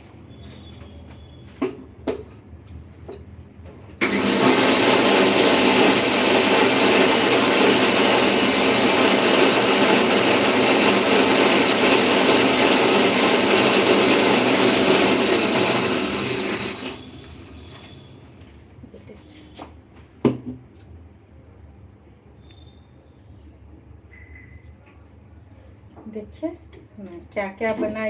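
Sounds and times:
electric mixer grinder running: 4.0s - 18.2s.

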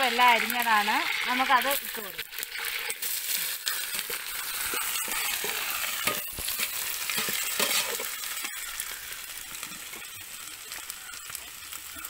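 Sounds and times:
vegetables sizzling in hot oil: 0.0s - 12.0s
metal spoon scraping a pan: 1.0s - 8.9s.

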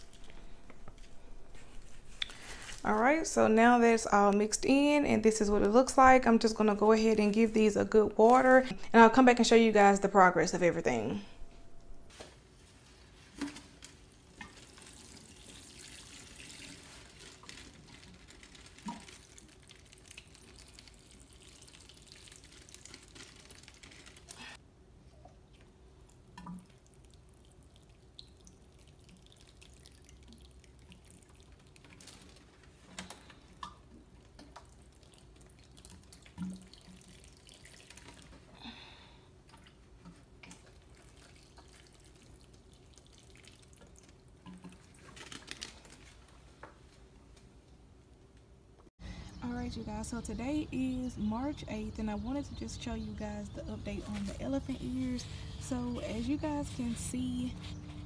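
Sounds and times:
watering can sprinkling on soil: 12.7s - 24.6s, 26.4s - 38.4s, 39.6s - 46.3s, 49.5s - 57.9s.

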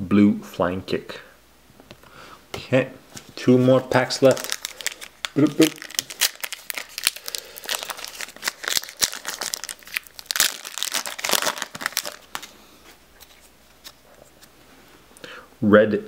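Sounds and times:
foil wrapper crinkling and tearing: 3.9s - 12.5s.

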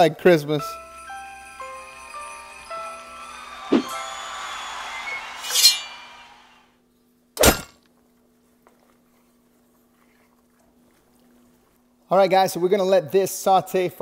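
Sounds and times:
glass clinking and crashing: 5.4s - 6.1s.

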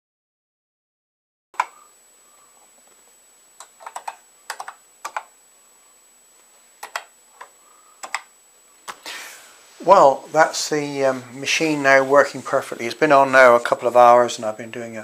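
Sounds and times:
keyboard key clicks: 3.6s - 5.3s, 6.8s - 7.1s, 8.0s - 8.3s.

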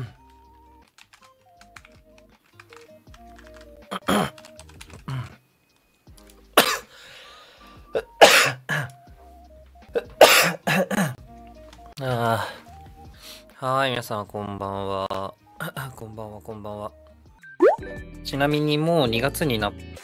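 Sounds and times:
soft background music: 0.0s - 20.0s
person coughing: 3.9s - 4.4s, 5.1s - 5.4s, 6.6s - 6.9s, 8.0s - 8.9s, 10.0s - 11.2s.

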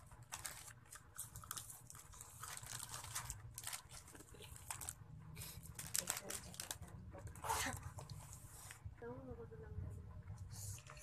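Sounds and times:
plastic wrapper crinkling: 0.0s - 8.4s
chewing candy: 0.3s - 8.4s.

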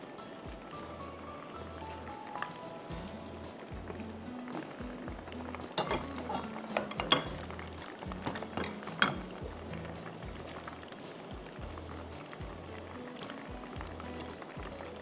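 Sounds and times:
chicken sizzling in hot oil: 0.0s - 15.0s
spatula clinking against a pan: 5.8s - 7.4s.

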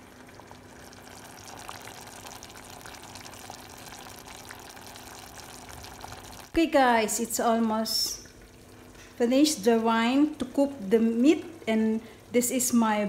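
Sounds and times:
stew simmering with small pops: 0.0s - 6.6s, 7.8s - 9.3s.

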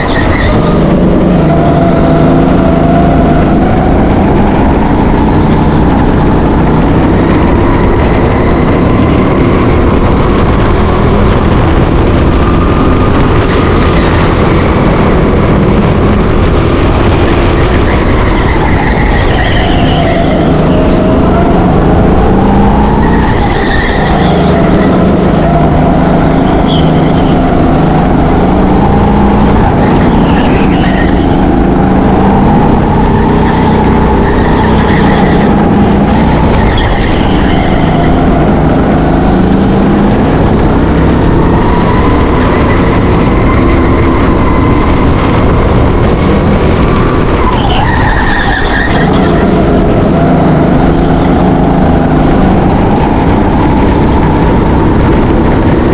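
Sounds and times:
tyre squeals: 0.0s - 0.9s, 17.8s - 21.5s, 23.0s - 27.5s, 29.7s - 31.6s, 47.4s - 49.6s
go-kart engine at speed: 0.0s - 55.9s.

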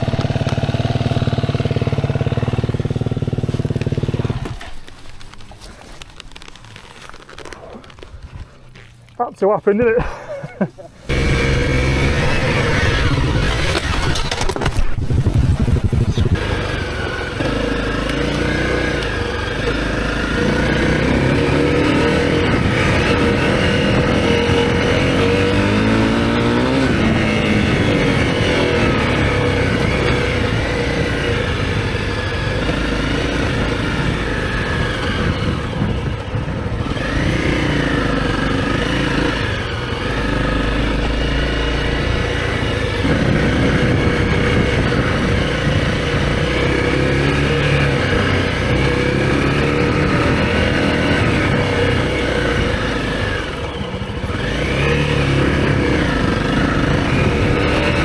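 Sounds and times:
motorcycle engine revving: 0.0s - 5.2s, 11.0s - 58.0s
wind noise: 11.1s - 17.6s, 20.4s - 58.0s.

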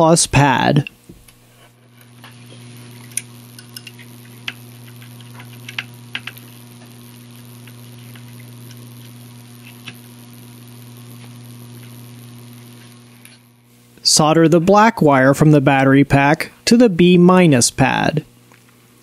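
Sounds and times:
steady low hum: 0.0s - 19.0s
solder crackling ticks: 2.0s - 14.9s.

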